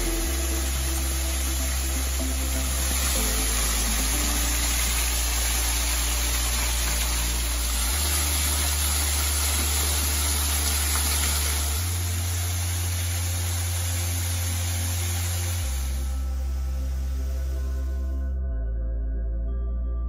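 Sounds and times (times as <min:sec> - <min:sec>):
waterfall rushing over rock: 0:00.0 - 0:16.0
ambient background music: 0:00.0 - 0:20.0.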